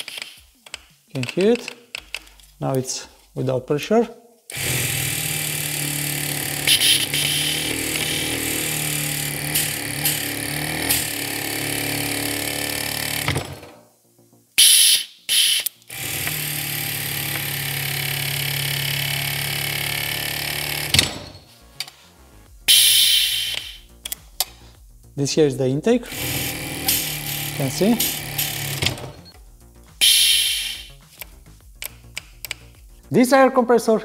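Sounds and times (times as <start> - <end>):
air compressor motor running: 4.5 - 13.7, 14.6 - 21.4, 22.7 - 23.9, 26.0 - 29.3, 30.0 - 31.0.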